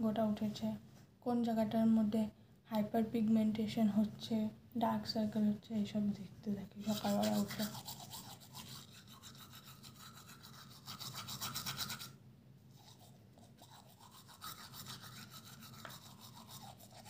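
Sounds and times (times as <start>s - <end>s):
toothbrush scrubbing teeth: 6.8s - 12.2s, 12.8s - 17.0s.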